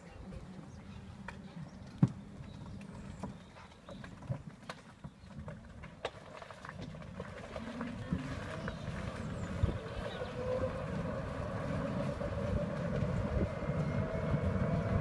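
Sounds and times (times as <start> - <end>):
low steady hum: 6.4 - 15.0.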